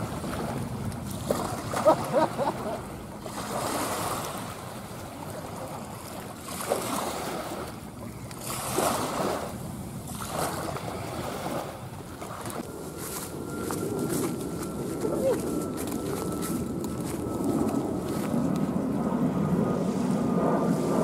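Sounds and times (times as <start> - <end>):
jet engine rumbling rush: 12.6 - 21.0.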